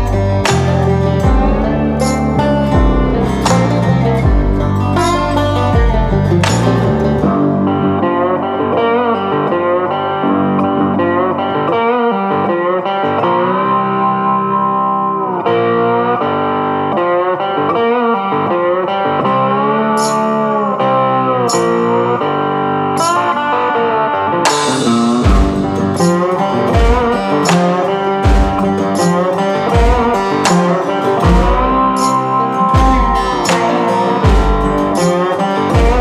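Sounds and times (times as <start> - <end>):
guitar music with bending notes: 0.0 - 36.0
drums with cymbal hits: 2.8 - 6.8, 24.5 - 32.2, 32.8 - 35.2, 35.8 - 36.0.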